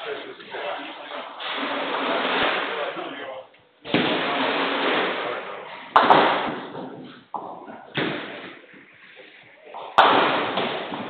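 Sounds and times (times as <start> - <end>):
bowling balls hitting pins: 3.8 - 11.0.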